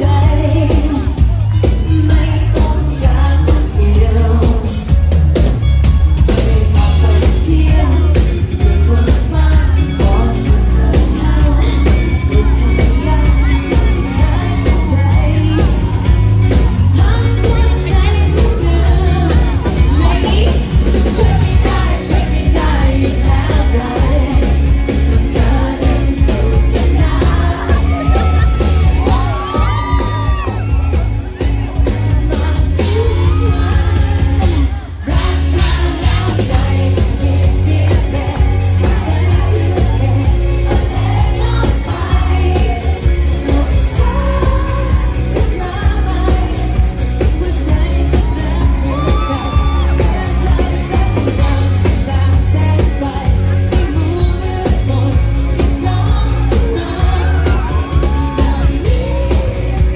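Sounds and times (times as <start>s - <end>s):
woman singing into a microphone: 0.0s - 5.0s, 6.2s - 16.2s, 16.8s - 30.9s, 31.6s - 59.9s
live pop band playing: 0.0s - 59.9s.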